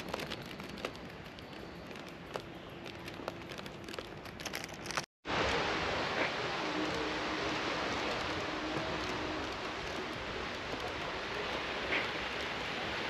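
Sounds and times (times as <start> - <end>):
even rush of noise: 5.3 - 13.0.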